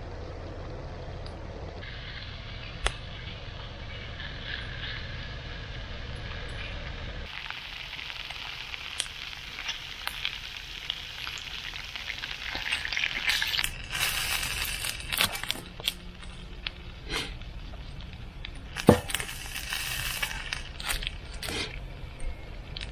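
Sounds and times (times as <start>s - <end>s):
fire crackling: 0.0s - 22.9s
food sizzling in frying pan: 7.2s - 15.9s, 18.6s - 21.3s.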